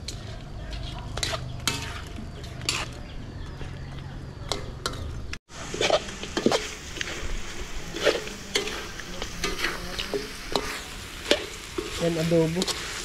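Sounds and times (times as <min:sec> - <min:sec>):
metal spoon scraping a wok: 0:00.0 - 0:03.9, 0:04.5 - 0:13.0
meat sizzling: 0:05.4 - 0:13.0.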